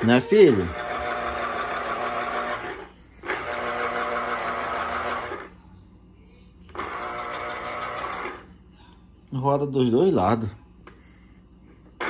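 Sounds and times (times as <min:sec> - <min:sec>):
juicer motor whirring: 0:00.0 - 0:05.6, 0:06.7 - 0:08.5.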